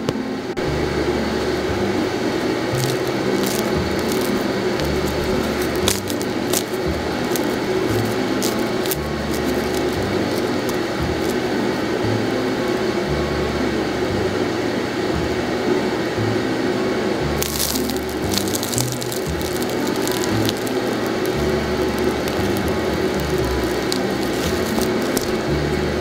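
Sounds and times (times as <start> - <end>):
bread crust crackling: 2.7 - 11.6, 17.4 - 25.6
background music with bass: 2.7 - 16.5.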